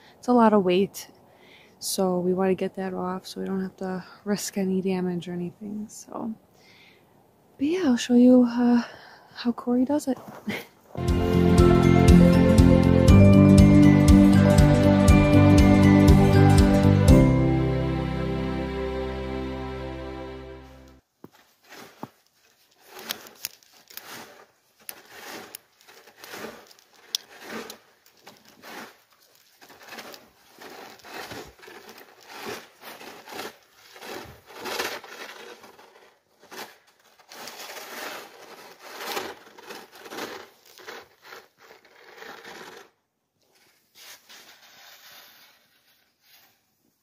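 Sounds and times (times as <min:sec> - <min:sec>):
snow crunching and sliding: 0:09.9 - 0:17.7, 0:20.2 - 0:47.0
rake scraping through snow: 0:10.1 - 0:16.5, 0:21.3 - 0:46.8.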